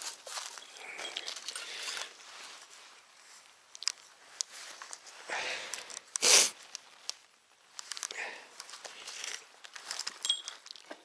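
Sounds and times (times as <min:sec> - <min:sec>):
bicycle tyre hiss: 0:06.2 - 0:06.6.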